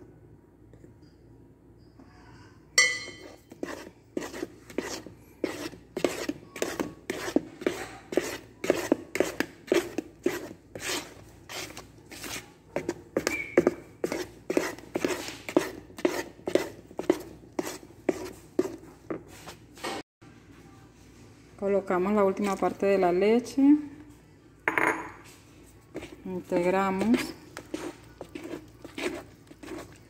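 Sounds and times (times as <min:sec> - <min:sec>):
wooden spoon stirring batter: 0:03.0 - 0:19.9, 0:22.0 - 0:23.6, 0:25.2 - 0:30.0.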